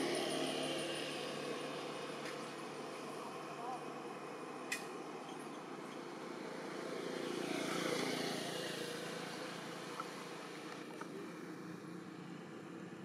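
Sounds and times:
motor vehicle passing: 5.0s - 13.0s.

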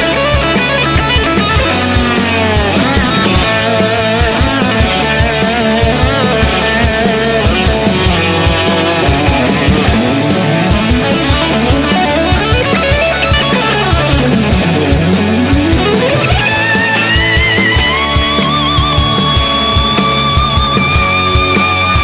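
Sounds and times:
electric guitar: 0.0s - 22.0s
steady drum beat: 0.0s - 22.0s.

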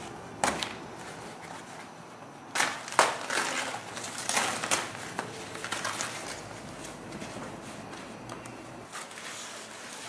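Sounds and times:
plastic wrap rustling and crinkling: 2.6s - 8.2s, 8.9s - 10.0s.

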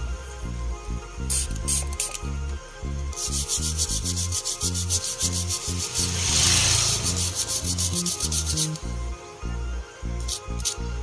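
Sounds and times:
brush scrubbing circuit board: 3.1s - 8.8s.

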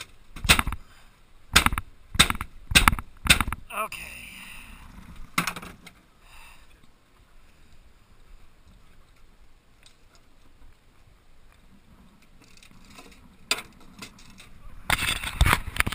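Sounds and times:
wind and water hiss: 0.0s - 15.9s
sharp knock: 1.6s - 3.6s
fishing gear clicking and rustling: 12.0s - 15.9s.

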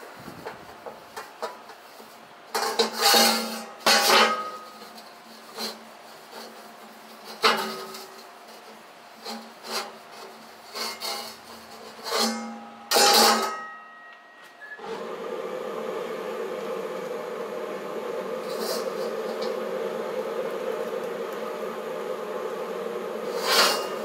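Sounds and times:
wok knocking and scraping on metal: 0.4s - 1.9s, 2.5s - 14.1s, 23.2s - 24.0s
steady buzzing hum: 11.8s - 24.0s
cloth rubbing over metal: 18.4s - 19.4s, 23.2s - 24.0s.

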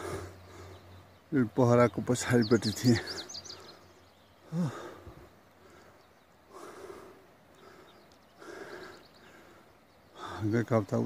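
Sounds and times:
person breathing: 3.6s - 10.4s.

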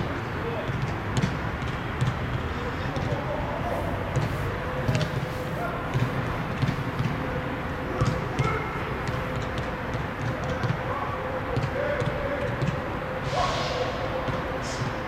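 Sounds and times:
football kicks: 4.1s - 7.3s.

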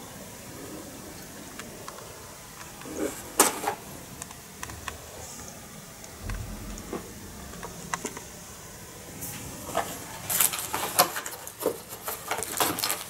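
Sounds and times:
cellophane crinkling: 10.3s - 13.0s.

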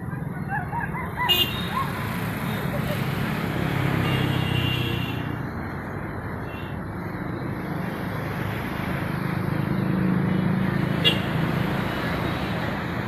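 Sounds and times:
vehicle engine passing: 0.0s - 4.6s
road traffic: 0.0s - 13.0s.

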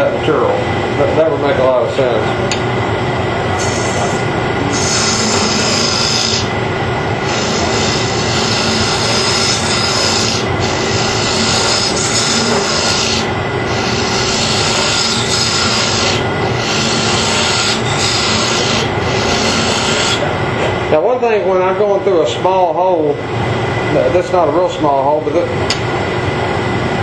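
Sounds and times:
wood lathe humming: 3.5s - 20.6s
tool scraping wood: 3.6s - 6.5s, 7.2s - 20.3s.

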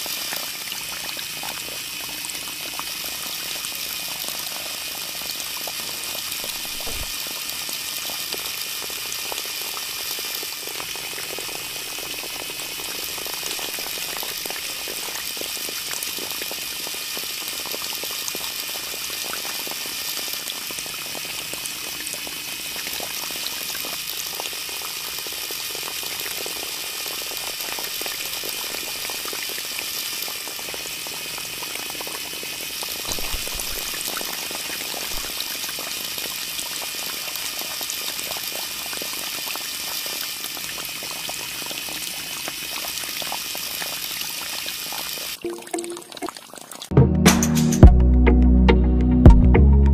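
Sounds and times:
water trickling into basin: 10.2s - 16.2s, 33.1s - 37.3s, 40.3s - 46.9s.

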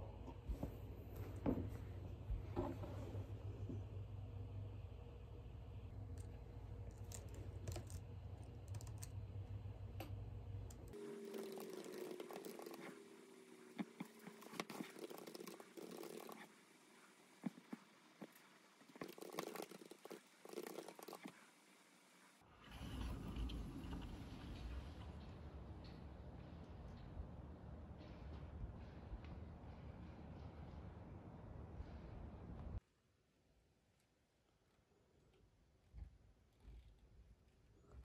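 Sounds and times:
steady low hum: 0.0s - 18.8s.

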